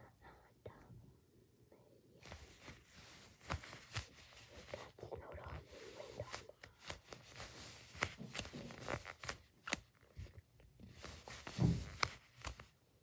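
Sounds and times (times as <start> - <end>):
soft thump: 11.5 - 12.1.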